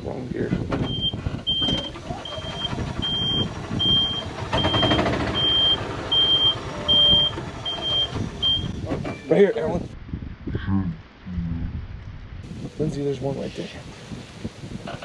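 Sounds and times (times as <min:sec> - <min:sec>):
reverse warning beeper: 0:00.9 - 0:09.3.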